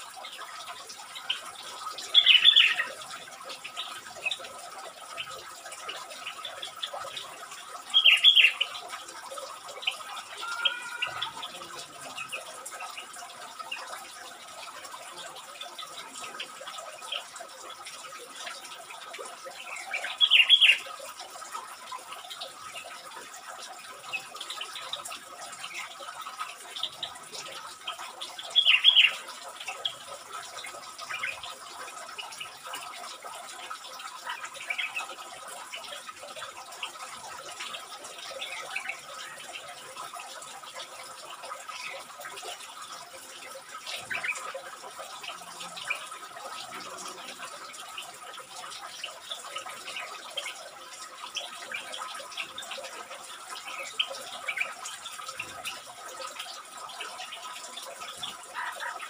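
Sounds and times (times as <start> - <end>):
bird bubbly calls: 0.0 - 59.0.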